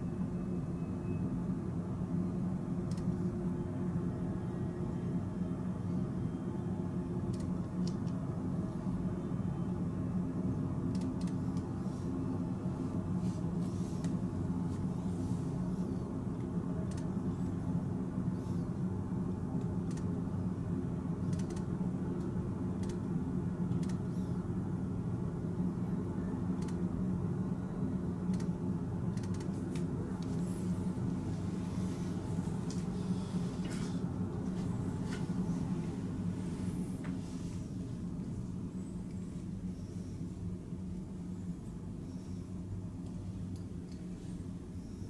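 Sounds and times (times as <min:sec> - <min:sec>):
low room tone hum: 0:00.0 - 0:45.0
faint ticks: 0:02.9 - 0:03.2, 0:21.3 - 0:23.0.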